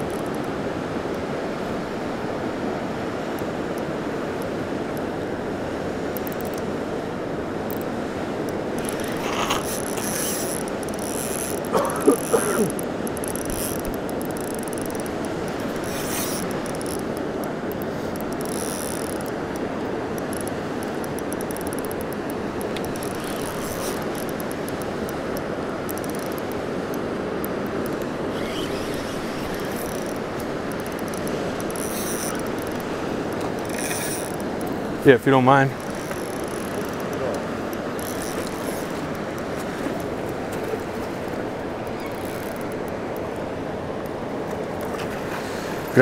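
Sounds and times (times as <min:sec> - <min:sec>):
fishing reel whirring and clicking: 0:00.0 - 0:00.6, 0:06.2 - 0:06.7, 0:07.6 - 0:34.8, 0:35.8 - 0:40.1, 0:41.3 - 0:43.3
river rushing: 0:00.0 - 0:46.0.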